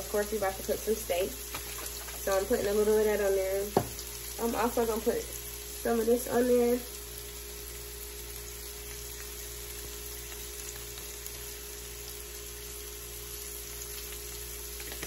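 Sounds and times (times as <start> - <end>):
onions and peppers sizzling in oil: 0.0 - 15.0.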